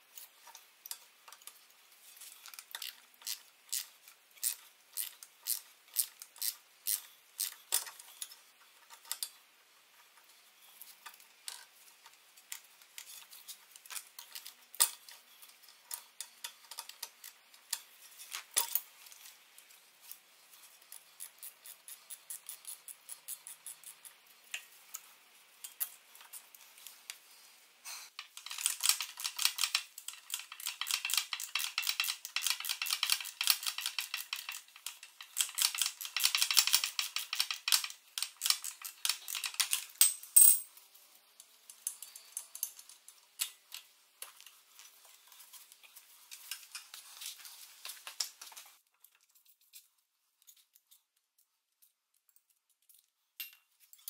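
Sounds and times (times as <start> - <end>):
metal tools clinking: 40.0 - 40.7.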